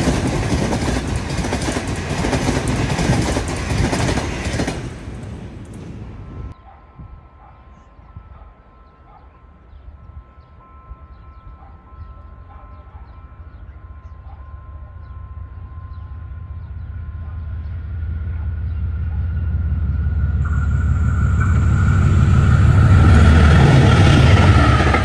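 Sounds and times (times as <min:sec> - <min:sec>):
locomotive engine rumble: 0:15.2 - 0:25.0
steady whine: 0:19.4 - 0:25.0.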